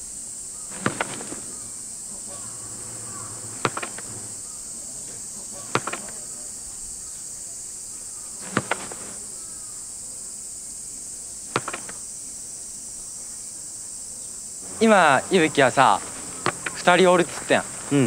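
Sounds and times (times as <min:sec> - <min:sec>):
insects droning: 0:00.0 - 0:18.0
soccer ball kicks: 0:00.7 - 0:04.5, 0:05.6 - 0:06.4, 0:08.4 - 0:09.3, 0:11.5 - 0:12.0, 0:15.8 - 0:17.5
light ball taps: 0:11.6 - 0:12.0.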